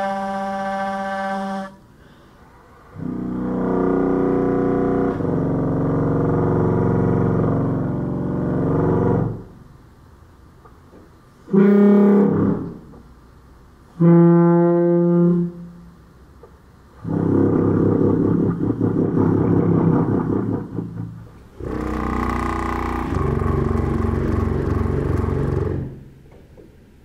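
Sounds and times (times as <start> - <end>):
sousaphone horn-like blasts: 0.0 - 1.8, 11.5 - 12.7, 14.0 - 15.8.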